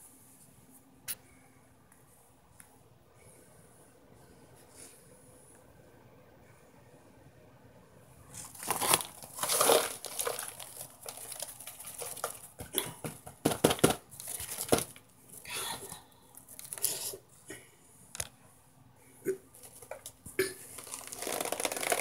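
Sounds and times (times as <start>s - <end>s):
packaging rustling and crackling: 8.4s - 15.0s, 19.6s - 22.0s.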